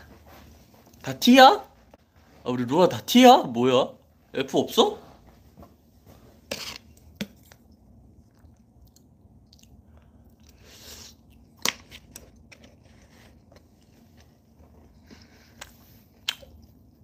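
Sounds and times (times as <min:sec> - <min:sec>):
person chewing food: 0:06.5 - 0:17.0.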